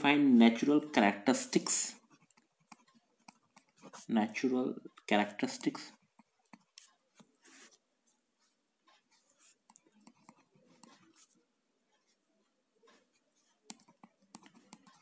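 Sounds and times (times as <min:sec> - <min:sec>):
pen scratching on paper: 0:01.6 - 0:04.2, 0:05.4 - 0:15.0.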